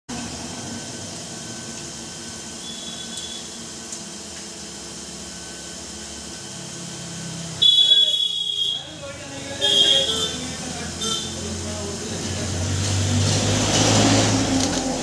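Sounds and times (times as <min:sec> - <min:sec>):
loud high-pitched sound: 0:09.6 - 0:11.6.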